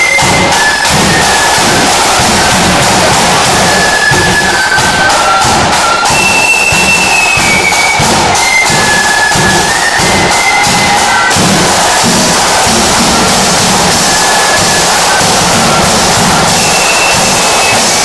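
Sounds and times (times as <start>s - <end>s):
bass drum: 0.0s - 18.0s
cymbals clashing: 0.0s - 18.0s
marching band playing: 0.0s - 18.0s
side drums rattling: 0.0s - 18.0s.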